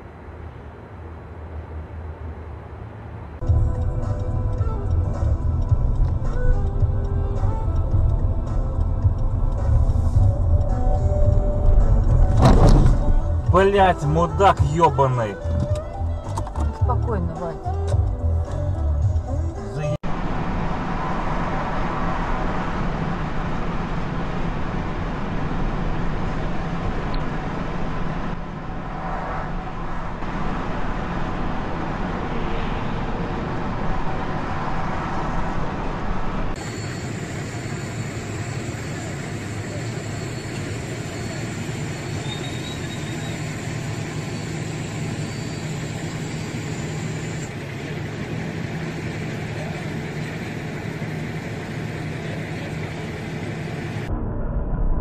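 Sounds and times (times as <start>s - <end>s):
street traffic noise: 0.0s - 54.1s
high-pitched whine: 19.7s - 55.0s
car driving on wet road: 20.0s - 54.1s.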